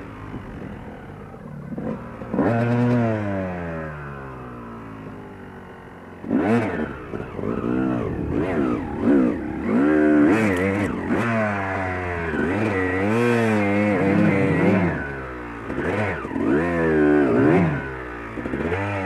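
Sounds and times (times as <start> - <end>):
dirt bike engine revving: 0.0 - 5.4, 6.1 - 19.0.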